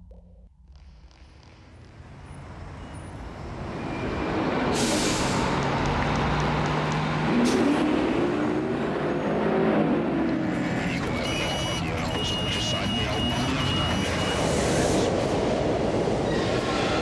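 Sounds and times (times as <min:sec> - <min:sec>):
road traffic noise: 0:01.7 - 0:17.0.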